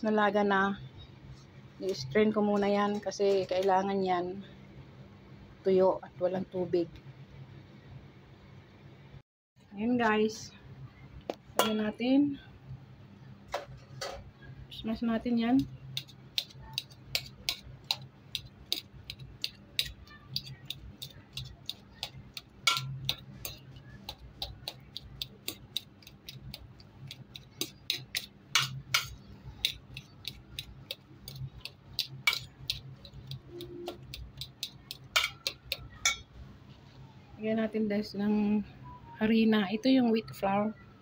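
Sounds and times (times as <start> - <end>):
fork tapping a metal bowl: 15.6 - 36.3.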